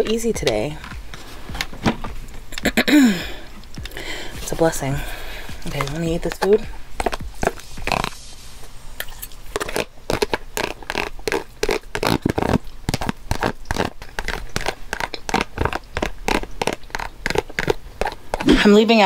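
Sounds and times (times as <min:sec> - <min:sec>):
fingers rummaging in food container: 0:05.6 - 0:08.2, 0:09.0 - 0:19.0.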